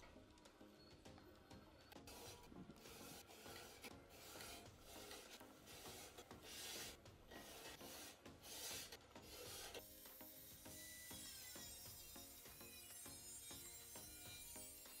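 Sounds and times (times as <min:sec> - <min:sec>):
marker pen scratching on metal: 0:02.0 - 0:09.9.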